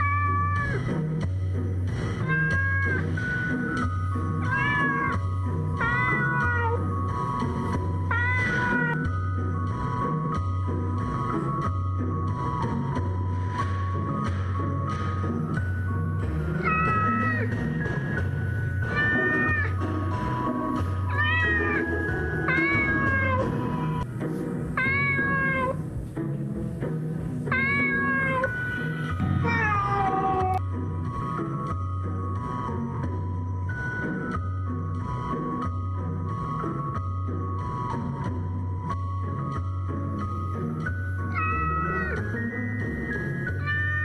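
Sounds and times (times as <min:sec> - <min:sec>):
cat meowing: 0:00.0 - 0:00.9, 0:02.2 - 0:03.2, 0:04.4 - 0:05.2, 0:05.8 - 0:06.9, 0:08.0 - 0:09.1, 0:16.5 - 0:17.7, 0:18.8 - 0:19.8, 0:20.7 - 0:24.1, 0:24.8 - 0:25.8, 0:27.5 - 0:30.6, 0:41.3 - 0:42.4, 0:43.5 - 0:44.0
background music with bass: 0:00.0 - 0:44.0.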